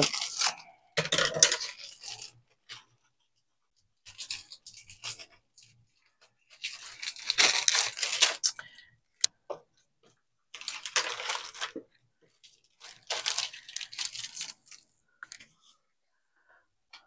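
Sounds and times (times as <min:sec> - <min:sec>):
croutons crunching: 0:00.0 - 0:02.8, 0:06.5 - 0:08.8, 0:10.6 - 0:11.8, 0:12.4 - 0:15.4
plastic bag crinkling: 0:00.0 - 0:02.8, 0:04.0 - 0:08.8, 0:10.5 - 0:15.4.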